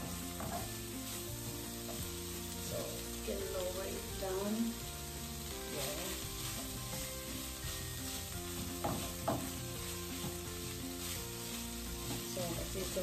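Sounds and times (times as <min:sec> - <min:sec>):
spoon scraping a pan: 0:00.0 - 0:02.3, 0:05.3 - 0:13.0
food sizzling in a frying pan: 0:00.0 - 0:13.0.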